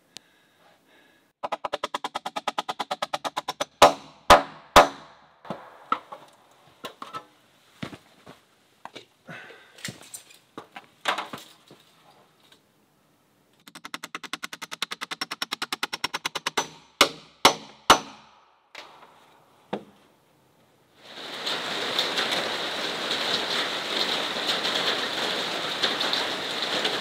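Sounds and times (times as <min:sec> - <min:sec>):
hammer driving nails into timber: 0:01.4 - 0:06.2, 0:13.6 - 0:18.4.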